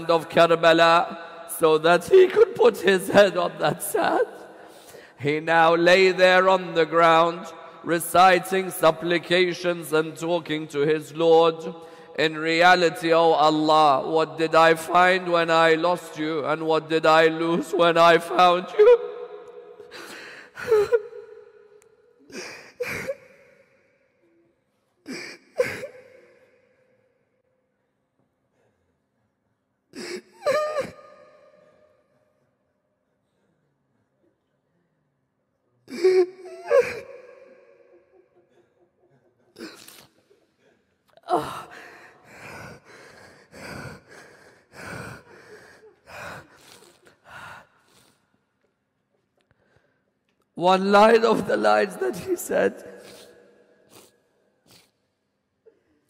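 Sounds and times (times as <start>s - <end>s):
man sobbing: 1.7s - 4.3s, 17.3s - 21.4s, 22.2s - 23.4s, 25.1s - 26.4s, 30.0s - 31.4s, 35.9s - 40.5s, 41.2s - 47.2s.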